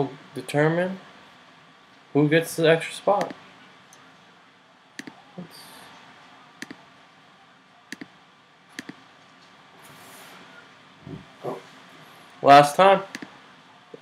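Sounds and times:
faint room hiss: 0.0s - 14.0s
mouse button clicks: 8.8s - 9.0s.

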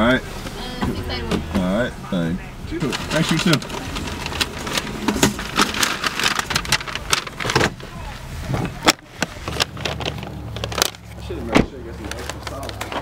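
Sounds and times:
paper bag crinkling: 2.8s - 7.9s.

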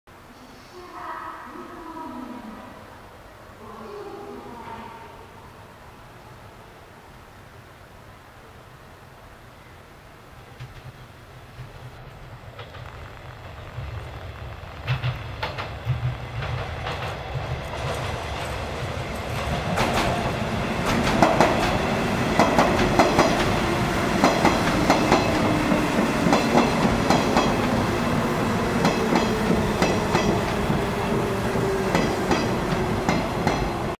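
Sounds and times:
electric train passing: 0.1s - 34.0s
train wheels clacking over rail joints: 10.6s - 30.9s, 31.5s - 34.0s.

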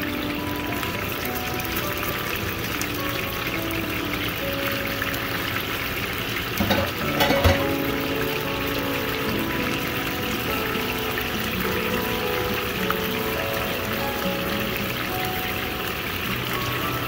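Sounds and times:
fish sizzling in oil: 0.0s - 17.0s
tongs clacking against pan: 6.6s - 7.8s.

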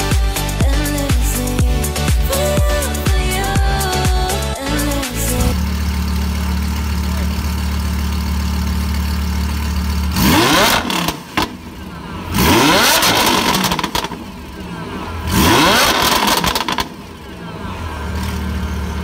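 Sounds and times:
car engine idling and revving: 0.0s - 19.0s.

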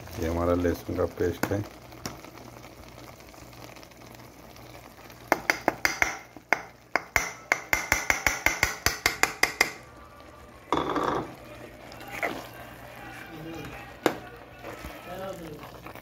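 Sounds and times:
spoon clinking against a pot: 5.3s - 9.8s, 10.7s - 11.3s.

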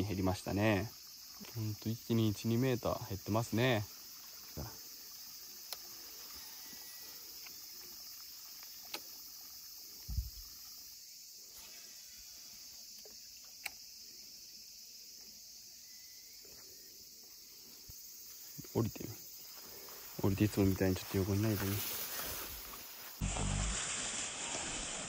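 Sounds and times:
insects chirring: 0.0s - 25.0s
faint sharp clicks: 5.6s - 5.9s, 8.6s - 9.1s, 13.0s - 13.8s.

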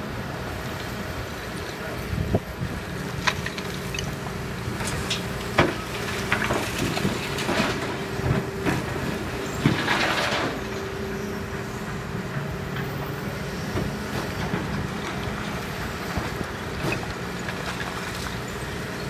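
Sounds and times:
excavator diesel engine running: 0.0s - 19.0s
rubble clattering into truck bed: 4.7s - 10.7s
rush of falling rubble: 4.7s - 10.7s.

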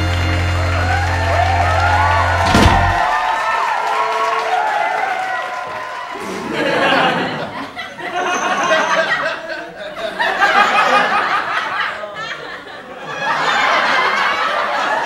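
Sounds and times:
studio audience laughing: 6.2s - 15.0s.

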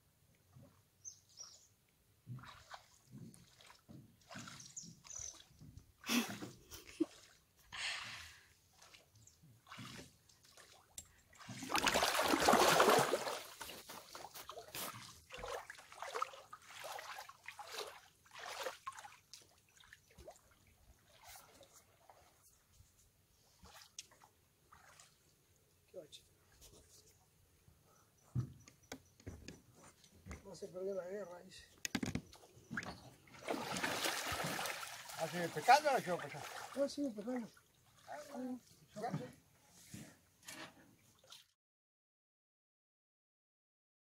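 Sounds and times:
water sloshing against hull: 2.2s - 7.6s, 8.7s - 25.5s, 31.7s - 41.5s
oars splashing in water: 2.3s - 7.5s, 8.7s - 22.5s, 23.6s - 25.4s, 31.8s - 39.3s.

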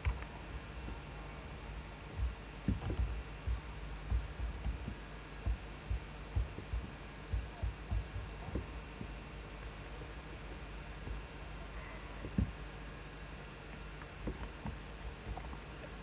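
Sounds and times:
steady low hum: 0.0s - 16.0s
dull low camera thumps: 2.0s - 10.2s, 11.0s - 11.3s, 12.2s - 12.6s, 14.2s - 15.6s.

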